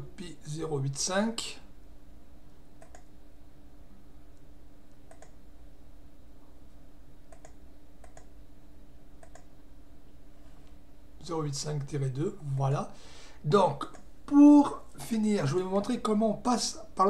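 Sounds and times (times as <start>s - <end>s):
steady low hum: 0.0s - 17.0s
computer mouse clicks: 2.8s - 3.1s, 4.9s - 5.4s, 7.3s - 8.3s, 9.2s - 9.5s.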